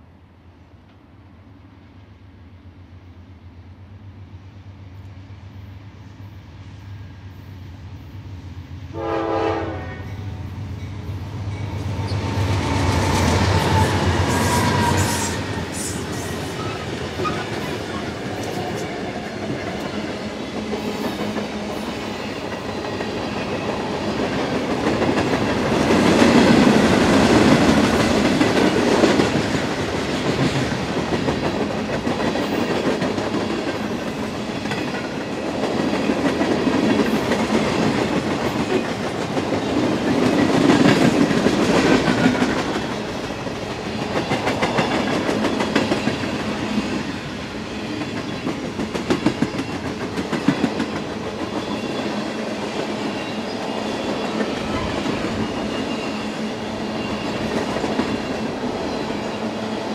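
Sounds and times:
diesel locomotive engine: 0.0s - 59.9s
train horn blast: 8.9s - 10.6s
train wheels rolling on rails: 10.4s - 59.9s.

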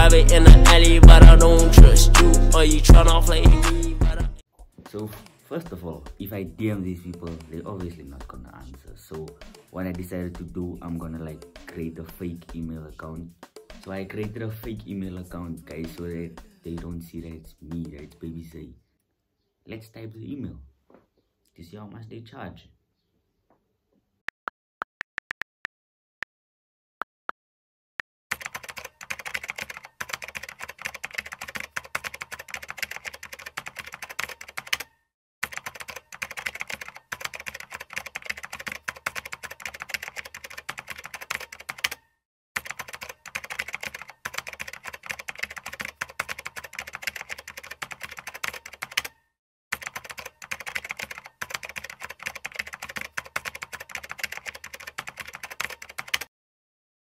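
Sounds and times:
rapid keyboard typing: 28.3s - 42.0s, 42.6s - 49.2s, 49.8s - 56.3s.

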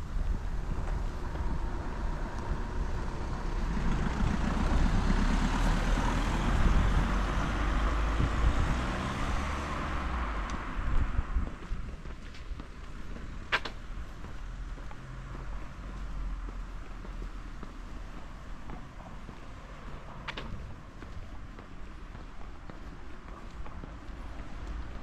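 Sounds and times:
steady low rumble: 0.0s - 5.1s, 9.9s - 25.0s
vehicle driving past: 0.6s - 11.5s.

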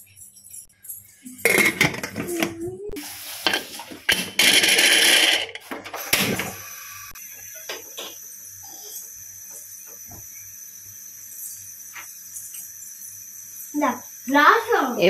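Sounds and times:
metal pots and utensils clanking: 1.2s - 2.7s, 3.4s - 6.5s.

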